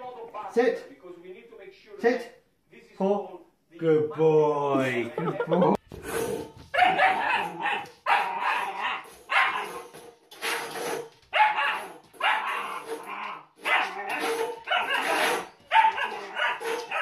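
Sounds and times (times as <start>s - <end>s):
puppy barking: 6.7s - 9.9s, 11.3s - 13.0s, 13.6s - 17.0s.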